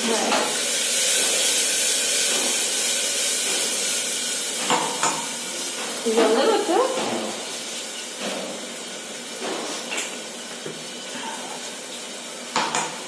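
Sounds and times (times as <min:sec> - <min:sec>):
paste sizzling in hot oil: 0:00.0 - 0:13.0
spoon knocking against pot: 0:12.6 - 0:13.0.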